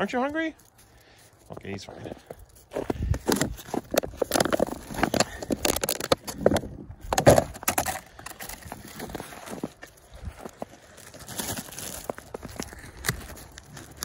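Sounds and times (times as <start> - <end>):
plastic container crackling and clicking: 3.2 - 9.2.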